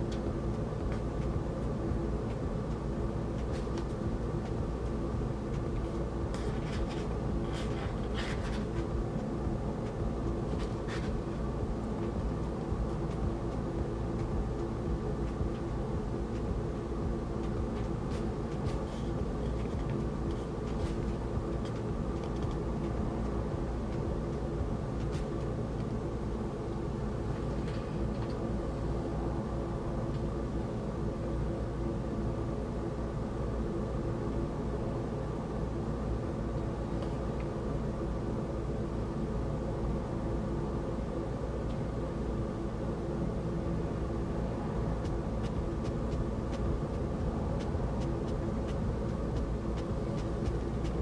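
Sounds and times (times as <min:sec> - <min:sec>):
background hum with tones: 0:00.0 - 0:51.0.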